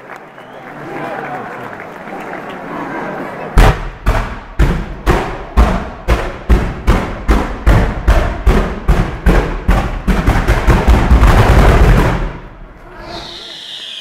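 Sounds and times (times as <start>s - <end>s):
firecracker bangs: 3.6s - 12.4s.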